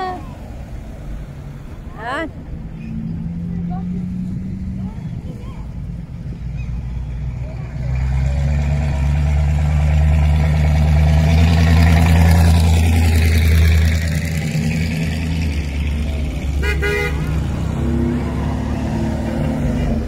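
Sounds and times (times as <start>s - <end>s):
cars passing slowly: 0.0s - 20.0s
car horn toot: 16.6s - 17.4s.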